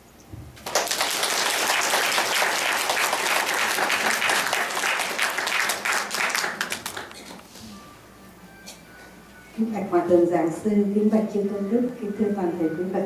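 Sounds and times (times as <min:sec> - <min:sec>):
audience applauding: 0:00.6 - 0:07.4.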